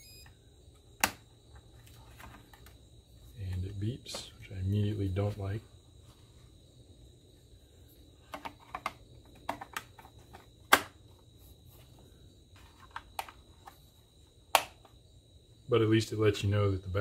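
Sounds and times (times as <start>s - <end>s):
plastic clicks and snaps: 1.0s - 1.2s, 14.5s - 15.0s.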